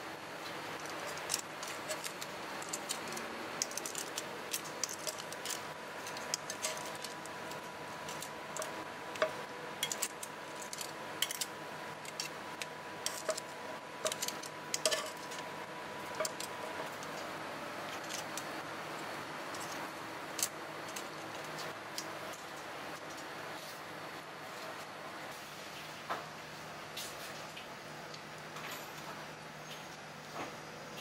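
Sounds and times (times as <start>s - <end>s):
metal tongs clicking on pan: 14.0s - 15.4s.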